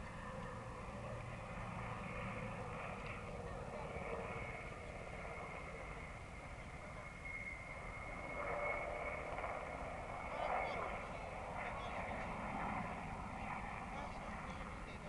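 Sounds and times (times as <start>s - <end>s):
helicopter rotor rumble: 0.0s - 15.0s
turbine whine: 0.0s - 15.0s.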